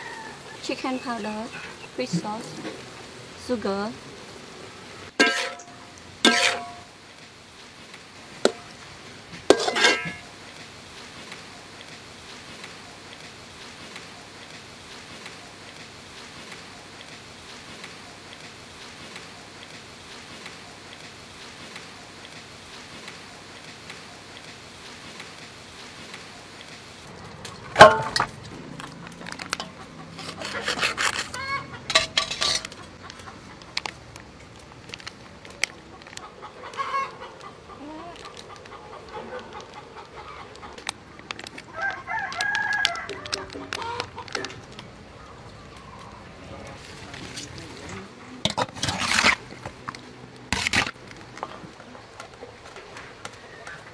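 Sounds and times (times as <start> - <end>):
frying sizzle: 0.0 - 53.9
utensil clanking against a wok: 5.1 - 6.9, 9.4 - 10.3, 27.4 - 28.4, 29.3 - 33.1, 48.4 - 49.9
knife sawing through plastic: 30.1 - 31.4
packet crinkling: 38.0 - 45.0.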